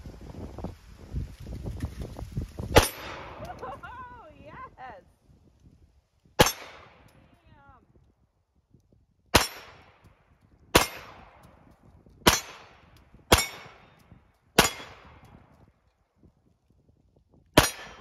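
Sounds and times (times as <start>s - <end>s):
pistol shots with echo: 6.4s - 7.2s, 9.3s - 10.0s, 10.7s - 11.4s, 12.2s - 14.0s, 14.6s - 15.2s, 17.6s - 18.0s.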